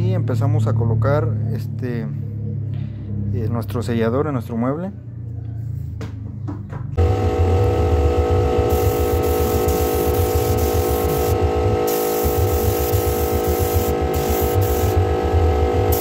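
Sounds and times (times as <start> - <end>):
air compressor chugging: 7.0 - 16.0
spray gun hissing: 8.7 - 15.0.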